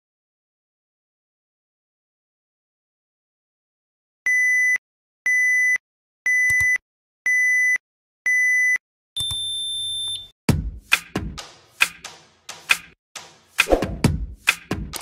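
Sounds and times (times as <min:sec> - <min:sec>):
short timer beeps: 0:04.3 - 0:10.3.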